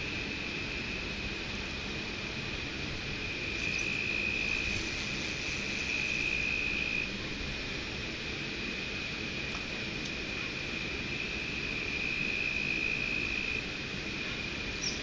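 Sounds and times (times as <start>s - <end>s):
high-pitched insect trill: 2.5s - 7.2s, 10.2s - 15.0s.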